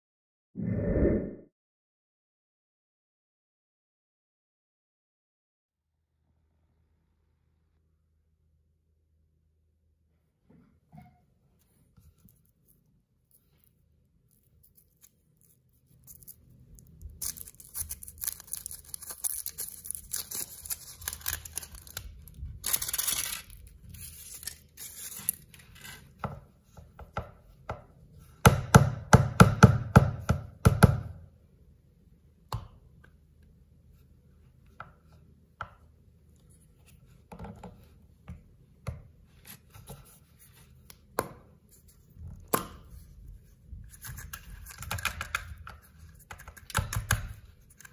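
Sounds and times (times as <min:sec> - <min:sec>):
chocolate shell cracking: 0:14.4 - 0:25.4
foil crinkling and tearing: 0:14.7 - 0:25.8.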